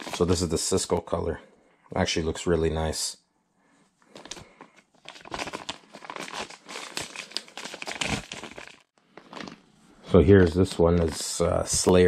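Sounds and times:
plastic bags crinkling: 0.0 - 0.9, 4.1 - 12.0.

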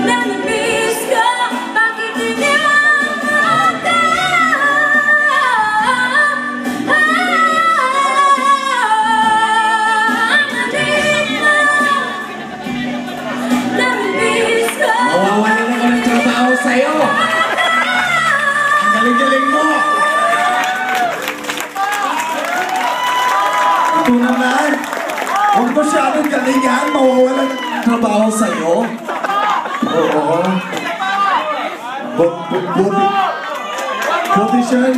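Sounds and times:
woman singing: 0.0 - 21.0
backing music: 0.0 - 33.3.

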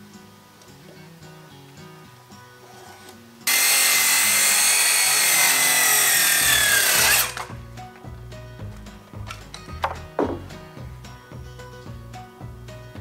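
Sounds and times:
soft background music: 0.0 - 13.0
circular saw cutting boards: 2.6 - 7.6.

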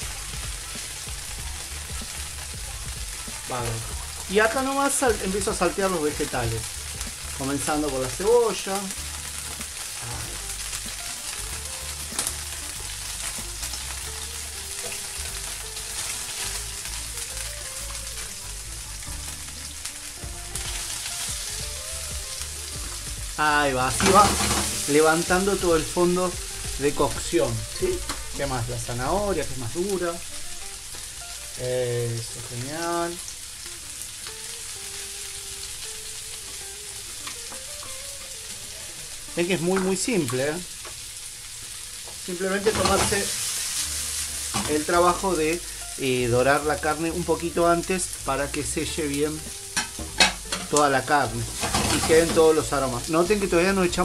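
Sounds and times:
oil sizzling in frying pan: 0.0 - 54.0.

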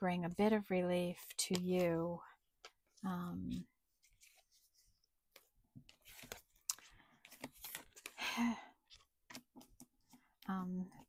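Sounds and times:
cards clicking and sliding: 5.9 - 8.2.

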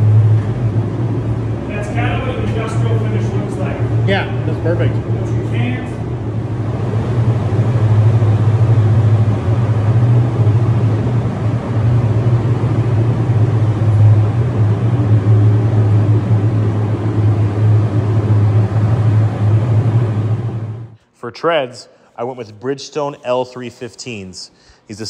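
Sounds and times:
air rushing: 0.0 - 21.0
ventilation machine hum: 0.0 - 25.0.

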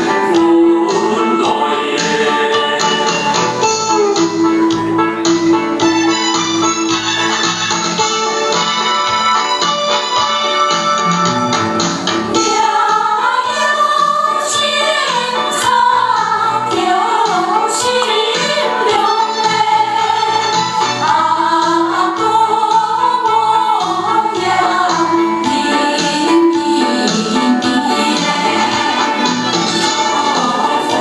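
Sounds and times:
people singing: 0.0 - 4.1, 12.3 - 31.0
amplified backing music: 0.0 - 31.0.

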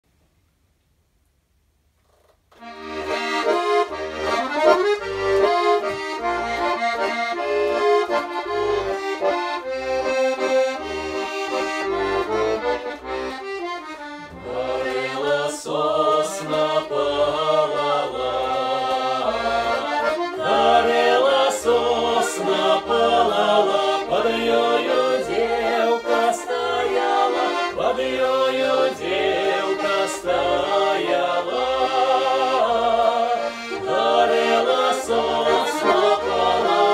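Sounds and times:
button accordion playing folk song: 2.6 - 36.9
group of people singing: 14.3 - 36.9.

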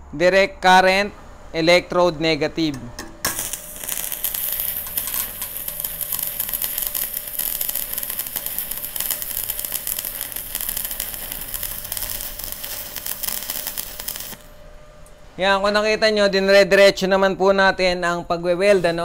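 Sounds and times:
welding arc crackling: 2.8 - 14.6.

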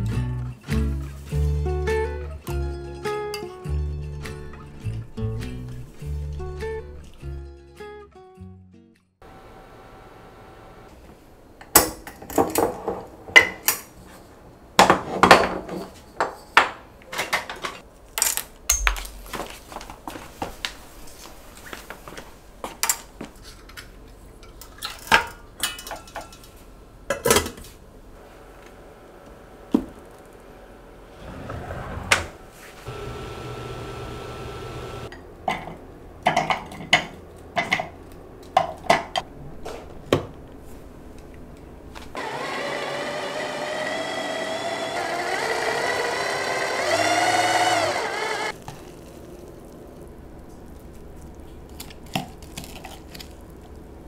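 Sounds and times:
kitchenware clinking and knocking: 11.7 - 14.0, 14.8 - 17.8
hand blender chopper motor: 42.2 - 48.6.

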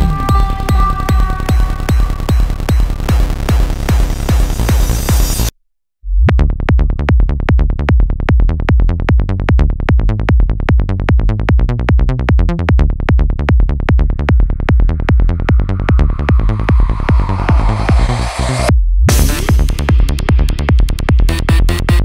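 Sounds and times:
high synth layer: 0.0 - 5.5, 14.5 - 19.6
kick drum and rolling bassline: 0.0 - 5.5, 6.2 - 22.0.

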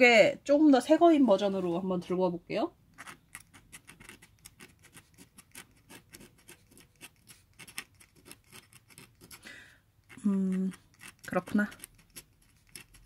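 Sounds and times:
pen nib scratching on paper: 2.9 - 13.0.

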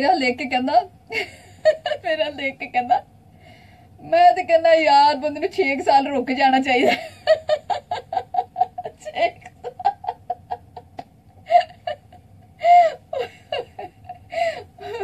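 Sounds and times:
woman laughing hard: 1.1 - 2.2, 6.8 - 15.0.

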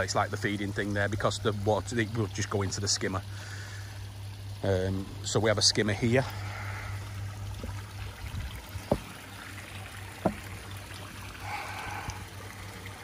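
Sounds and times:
pond water trickling: 0.0 - 13.0
low hum: 0.1 - 13.0
short knocks: 8.8 - 9.2, 10.2 - 10.5.

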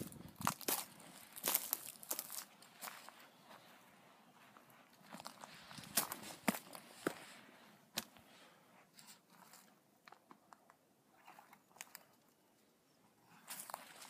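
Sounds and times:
footsteps crunching dry leaves: 0.3 - 3.8, 4.4 - 7.4.

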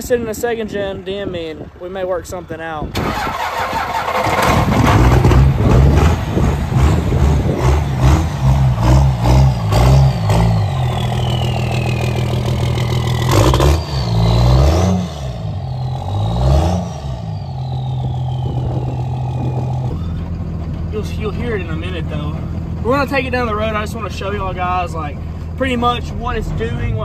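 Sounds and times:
diesel engine revving and idling: 2.8 - 27.0
turbo whistle: 10.1 - 14.5, 15.4 - 20.2.

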